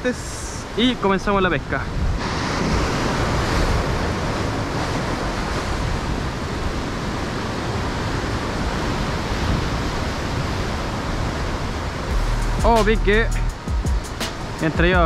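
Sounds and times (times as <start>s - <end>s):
sea surf washing over rocks: 0.0s - 12.1s, 14.0s - 15.0s
wind rumbling on microphone: 1.8s - 13.3s.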